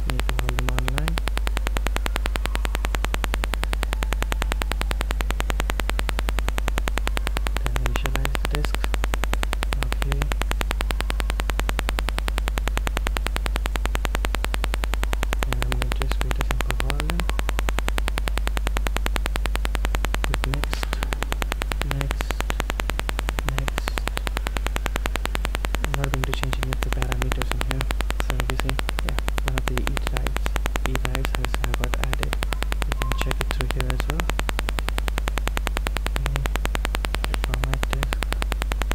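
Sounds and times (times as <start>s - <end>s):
low electrical hum with buzz: 0.0s - 38.9s.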